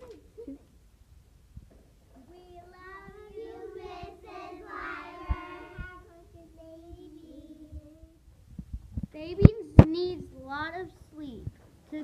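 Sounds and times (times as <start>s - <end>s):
girls singing in unison: 2.8s - 8.0s.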